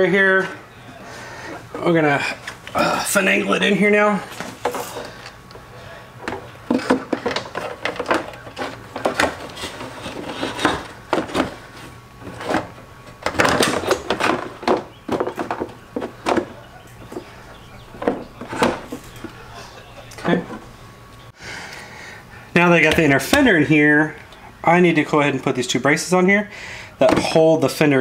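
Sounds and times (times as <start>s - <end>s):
plastic knocking and scraping: 6.2s - 17.4s, 18.0s - 19.4s.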